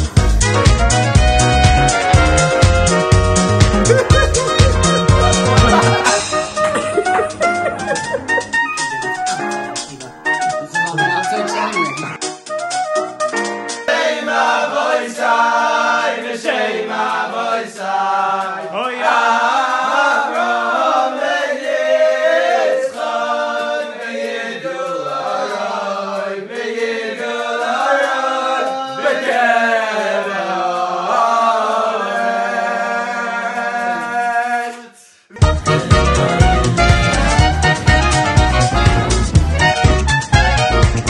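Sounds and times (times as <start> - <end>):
held low notes: 0.0 - 12.1, 35.4 - 41.0
chorus singing: 0.0 - 12.2, 13.7 - 41.0.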